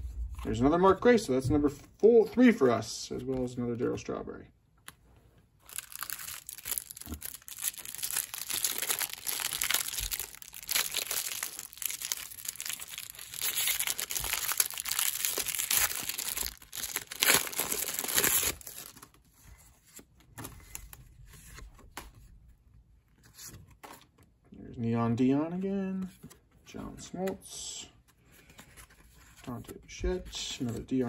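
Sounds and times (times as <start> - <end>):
plastic wrapper crinkling: 5.6 - 19.2
cards being handled: 5.6 - 22.3.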